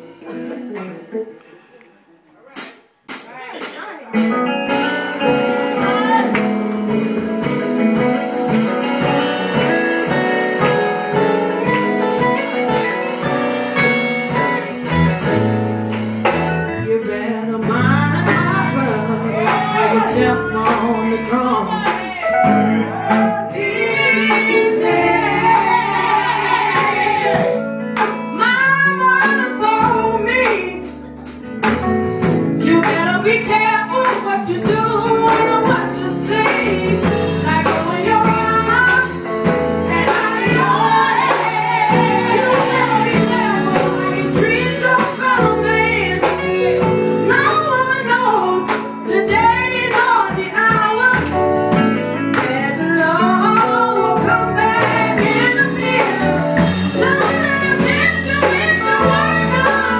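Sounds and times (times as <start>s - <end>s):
electric guitar: 0.0s - 1.7s, 4.0s - 59.9s
bass guitar: 2.4s - 59.9s
woman singing gospel lead: 4.1s - 15.3s, 16.2s - 27.6s, 28.3s - 30.9s, 32.2s - 59.9s
second woman singing: 16.7s - 27.5s, 32.6s - 51.4s, 52.4s - 59.9s.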